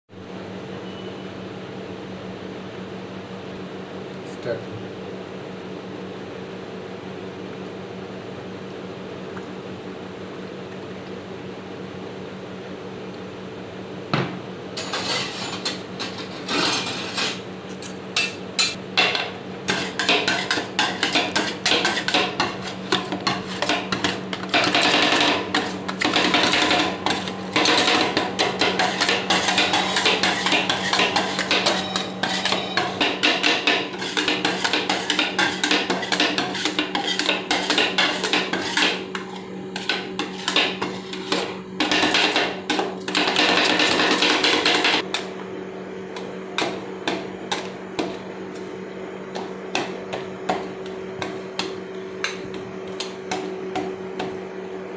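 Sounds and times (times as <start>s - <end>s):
steady low hum: 0.1s - 54.9s
metal spatulas clacking on steel plate: 18.2s - 39.0s.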